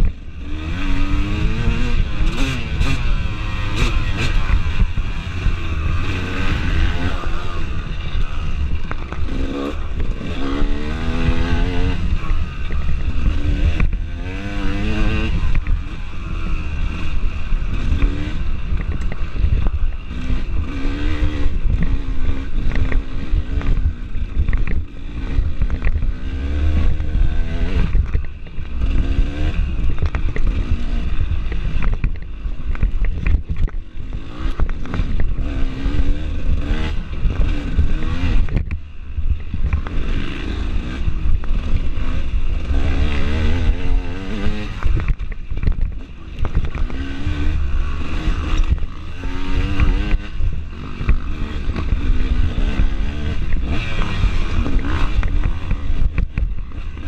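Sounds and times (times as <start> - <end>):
dirt bike engine revving: 0.0 - 57.0
bike knocks and rattles: 27.7 - 40.1.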